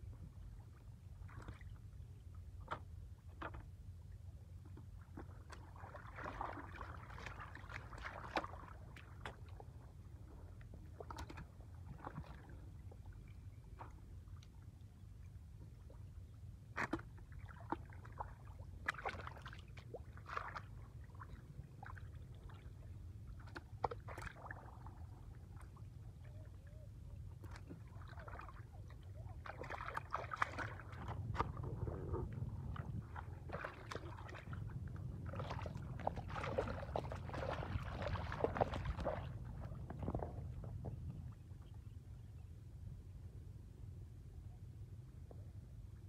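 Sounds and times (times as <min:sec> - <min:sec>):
splashing in muddy water: 0:01.2 - 0:01.9, 0:04.8 - 0:14.6, 0:16.6 - 0:41.3
steady low rumble: 0:24.4 - 0:46.0.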